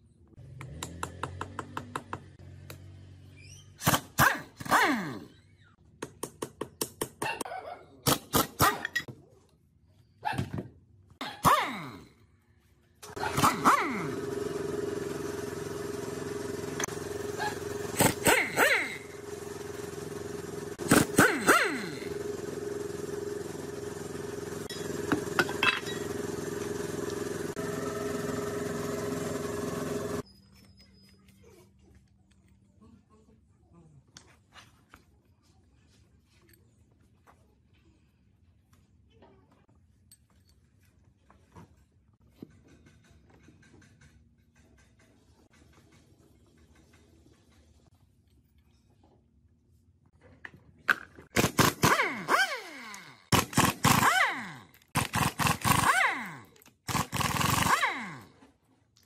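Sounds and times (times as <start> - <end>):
steady machine hum: 13.4 - 30.2.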